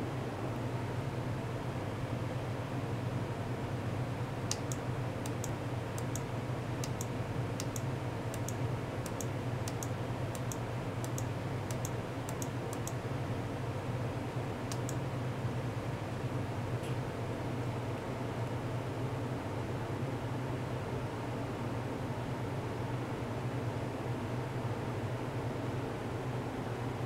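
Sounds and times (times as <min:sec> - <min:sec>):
steady low hum: 0:00.0 - 0:27.0
computer mouse clicks: 0:04.5 - 0:13.0, 0:14.7 - 0:15.0.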